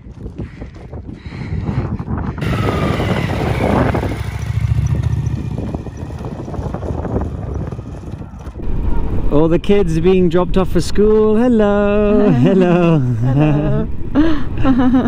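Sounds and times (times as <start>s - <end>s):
motorcycle engine on gravel: 2.4s - 8.9s.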